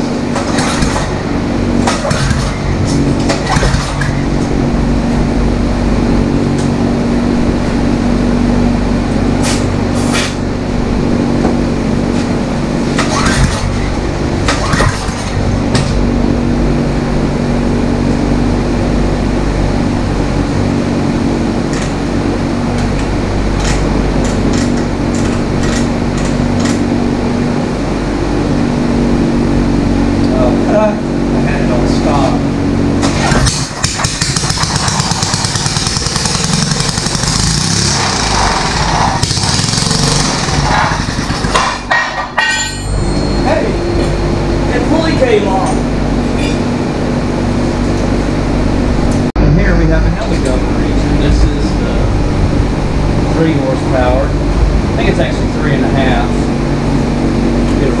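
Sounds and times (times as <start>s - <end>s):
small engine running: 28.4s - 41.9s
metallic tool clinks: 42.4s - 43.8s.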